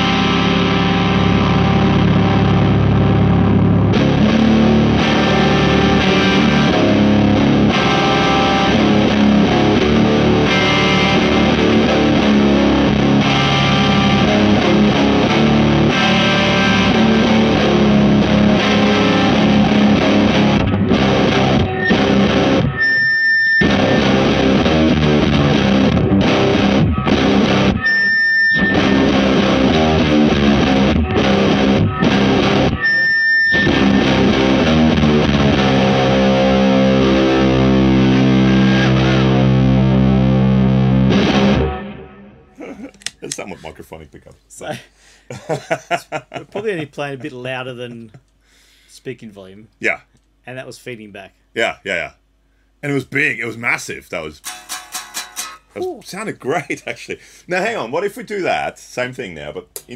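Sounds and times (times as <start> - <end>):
distorted electric guitar chords: 0.0 - 43.7, 54.4 - 55.8.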